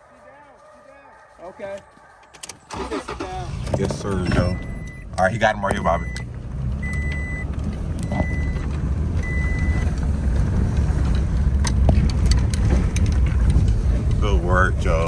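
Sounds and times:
engine and tyre rumble: 0:00.0 - 0:15.0
short electronic beeps: 0:04.2 - 0:05.2, 0:05.8 - 0:08.6, 0:09.2 - 0:09.8.

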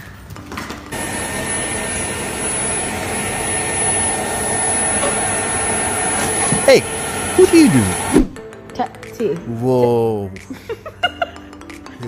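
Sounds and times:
stick vacuum cleaner whining: 0:00.9 - 0:08.4.

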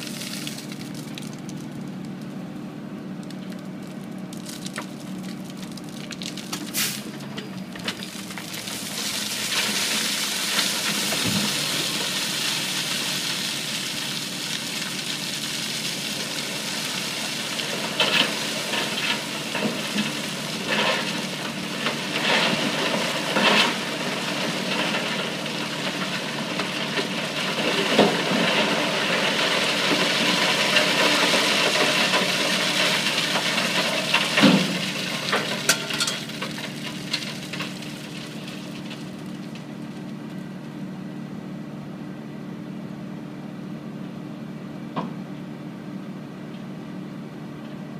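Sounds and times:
dirt and mud sliding: 0:00.0 - 0:01.9, 0:04.1 - 0:40.4
rocks cracking and knocking: 0:03.2 - 0:40.4.

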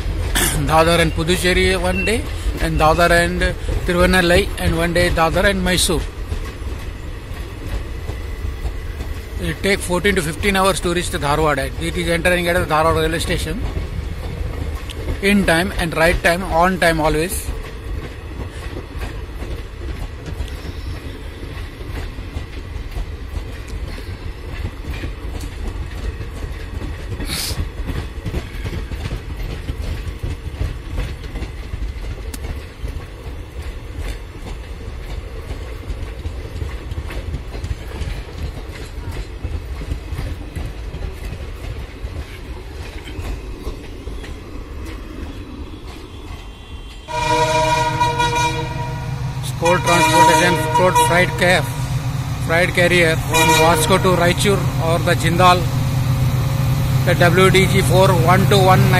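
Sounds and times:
clickety-clack over rail joints: 0:00.0 - 0:58.9
train wheels rumbling on rail: 0:00.0 - 0:58.9
locomotive horn: 0:47.1 - 0:51.8, 0:53.2 - 0:54.6.

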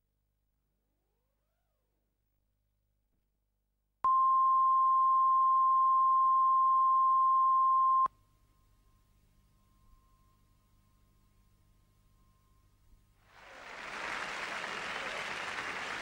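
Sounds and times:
steady high beep tone: 0:04.1 - 0:08.1.

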